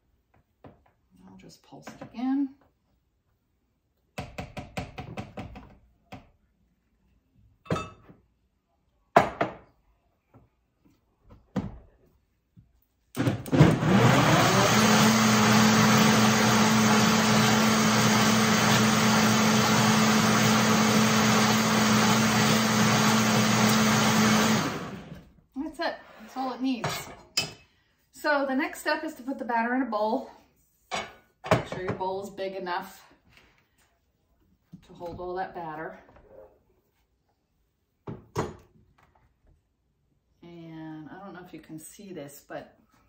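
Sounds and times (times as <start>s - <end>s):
blender running at high speed: 13.2s - 25.2s.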